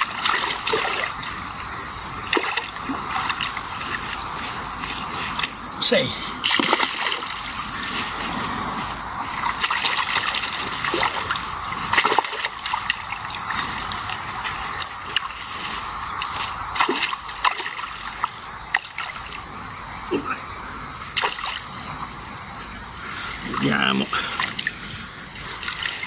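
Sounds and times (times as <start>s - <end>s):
short sharp water splashes: 0.0s - 5.6s, 6.4s - 19.4s, 21.1s - 21.8s, 23.4s - 24.8s
steady wash of water: 0.0s - 26.0s.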